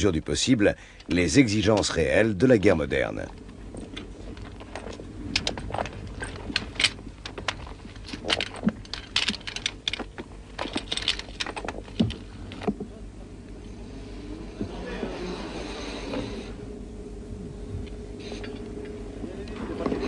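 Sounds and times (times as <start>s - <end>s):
steady low hum: 0.0s - 20.0s
sharp clicks and knocks: 3.3s - 12.9s.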